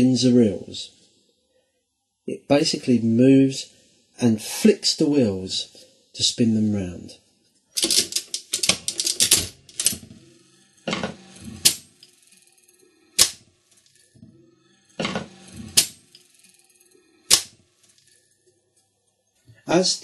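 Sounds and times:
slot machine mechanism clattering: 7.8s - 18.2s.

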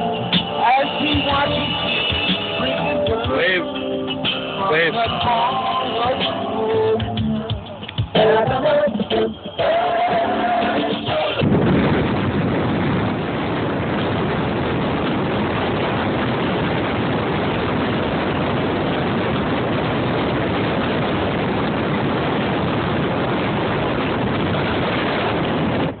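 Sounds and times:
wind blowing on microphone: 10.6s - 26.0s.

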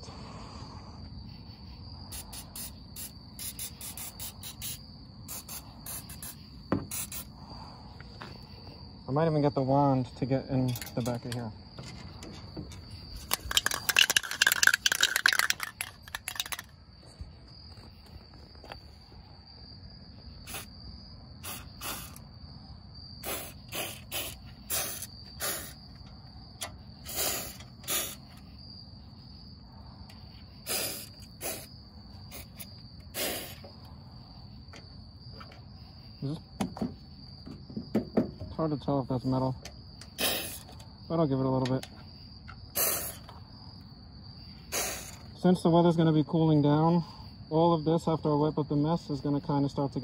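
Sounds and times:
crickets chirping: 0.0s - 50.0s
aerosol spray hisses: 2.1s - 7.6s, 20.4s - 20.7s, 21.4s - 22.2s, 23.2s - 25.8s, 27.1s - 28.3s, 30.7s - 31.7s, 32.3s - 33.7s, 40.2s - 40.7s, 42.8s - 43.2s, 44.7s - 45.2s
aerosol can rattling: 2.2s - 7.3s, 11.8s - 16.7s, 21.4s - 22.2s, 27.0s - 28.3s.

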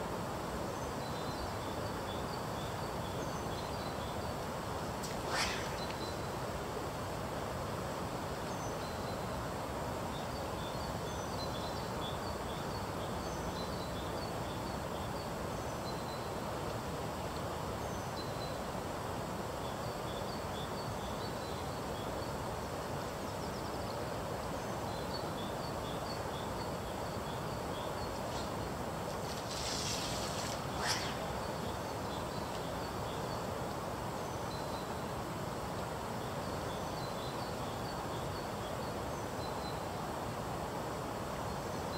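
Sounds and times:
small bird chirping: 4.9s - 6.4s, 25.1s - 33.4s.

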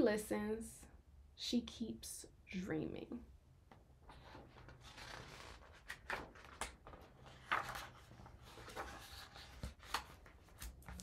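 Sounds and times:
book pages turning: 4.0s - 11.0s.

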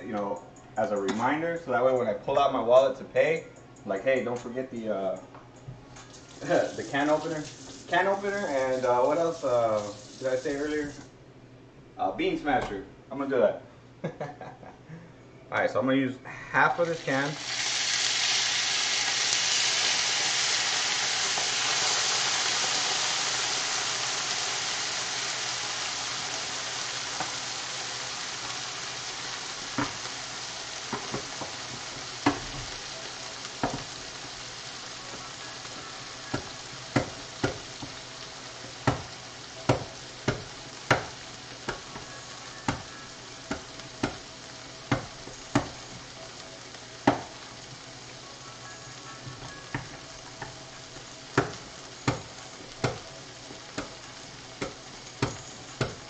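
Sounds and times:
sauce sizzling in hot oil: 6.0s - 11.0s, 16.7s - 56.0s.

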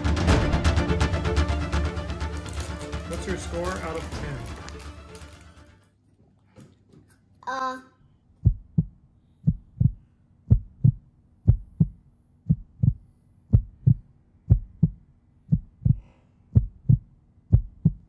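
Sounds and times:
heartbeat thumping: 8.4s - 18.0s.

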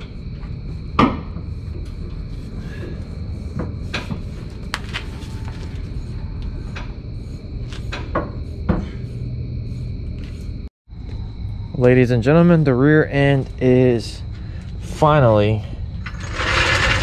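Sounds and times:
metal knocks and clanks: 0.0s - 2.2s
steady background hum: 0.0s - 17.0s.

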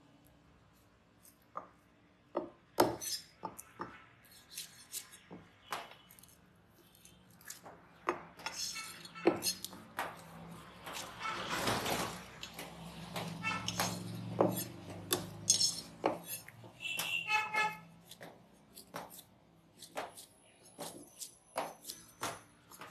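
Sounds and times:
knife knocking on wooden block: 13.2s - 15.4s.

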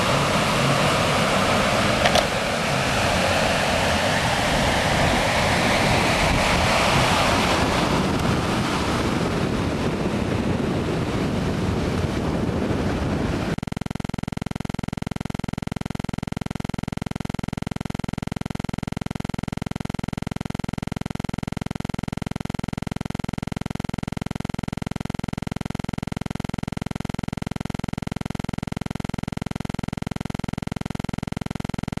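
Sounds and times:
wind buffeting microphone: 0.0s - 13.6s
steady hum: 0.0s - 32.0s.

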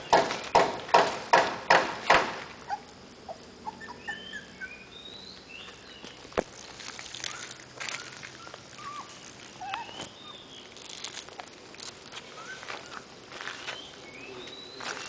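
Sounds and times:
sharp knock: 0.1s - 2.4s
footsteps on gravel: 5.3s - 15.0s.

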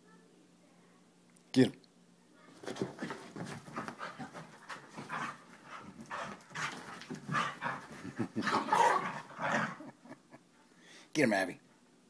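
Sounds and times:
dogs panting hard: 2.7s - 9.9s.

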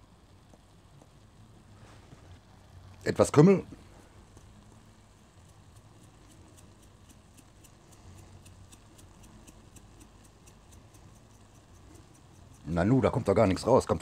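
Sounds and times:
spice jar rattling: 5.2s - 12.8s.

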